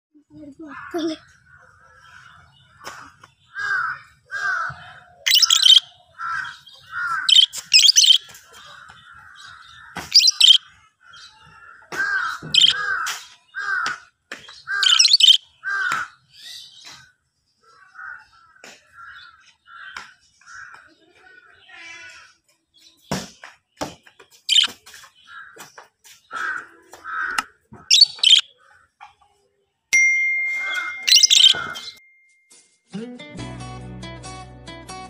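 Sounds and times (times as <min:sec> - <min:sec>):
bird chirping: 0:01.0 - 0:13.6, 0:14.4 - 0:20.4, 0:22.8 - 0:25.4, 0:27.3 - 0:29.0, 0:30.3 - 0:32.1
bird shrieking: 0:03.5 - 0:08.2, 0:10.1 - 0:10.6, 0:12.0 - 0:13.8, 0:14.7 - 0:16.1, 0:26.4 - 0:28.4, 0:30.7 - 0:32.0.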